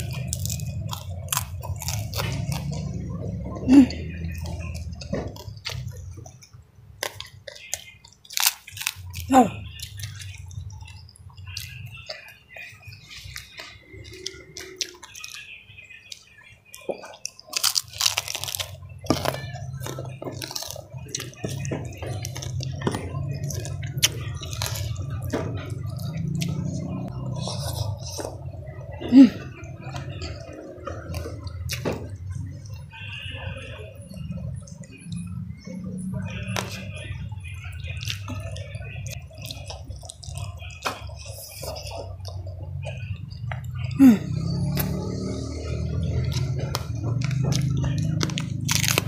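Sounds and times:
wet chewing with clicks: 0.0 - 15.4, 16.1 - 32.9, 33.5 - 49.0.

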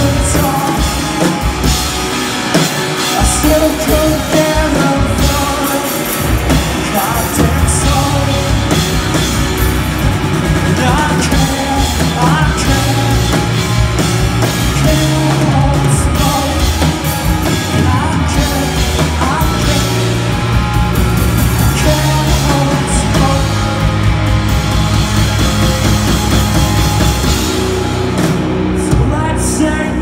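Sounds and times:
person singing: 0.0 - 2.0, 3.0 - 9.2, 10.7 - 13.8, 14.4 - 20.4, 21.4 - 24.0, 28.8 - 30.0
rock band playing: 0.0 - 30.0.

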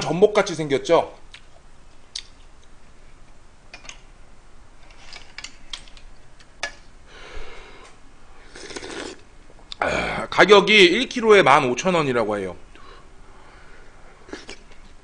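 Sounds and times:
person slurping broth: 8.4 - 10.3, 14.2 - 14.7.

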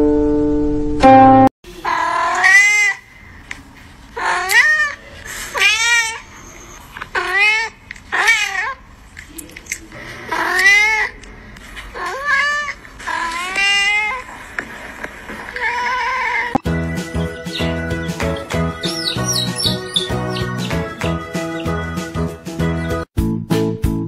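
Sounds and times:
plucked string note: 0.0 - 1.5
cat meowing: 1.8 - 3.1, 4.2 - 8.8, 10.3 - 11.2, 11.9 - 14.3, 15.5 - 16.6.

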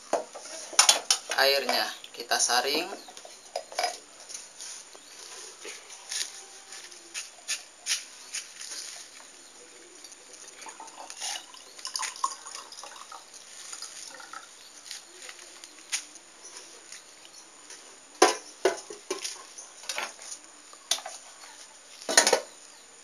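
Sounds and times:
water pouring into glass: 10.5 - 14.6.

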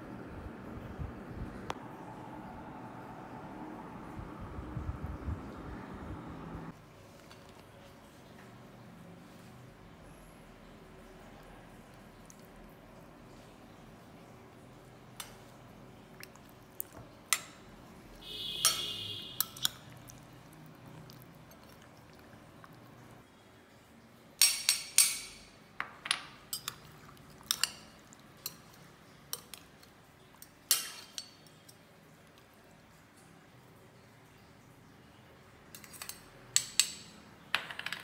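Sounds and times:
metal spoon clinking on glass bowl: 18.6 - 19.9, 30.7 - 31.8.

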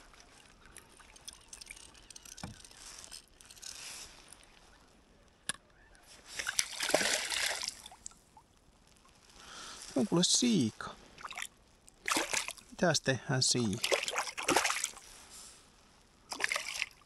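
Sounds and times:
water sloshing: 6.3 - 8.5, 11.1 - 12.8, 13.6 - 15.1, 16.3 - 17.0
fish splashing at surface: 6.4 - 8.1, 11.2 - 12.7, 13.7 - 15.0, 16.3 - 17.0.

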